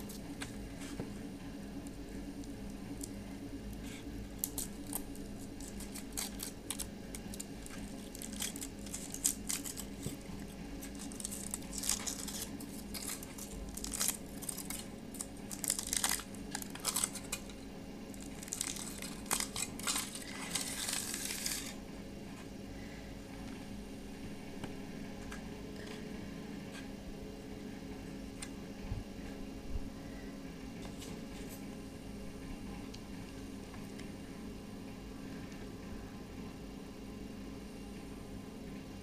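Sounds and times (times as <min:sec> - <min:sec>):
foil wrapper crinkling and tearing: 0:04.4 - 0:21.8.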